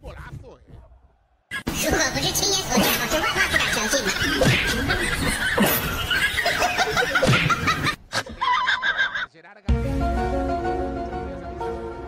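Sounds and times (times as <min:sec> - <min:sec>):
people laughing hard: 0:02.8 - 0:09.3.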